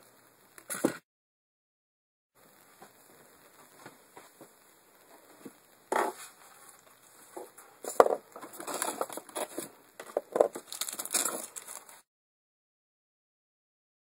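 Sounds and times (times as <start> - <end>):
objects rustling in styrofoam tray: 5.9 - 12.1.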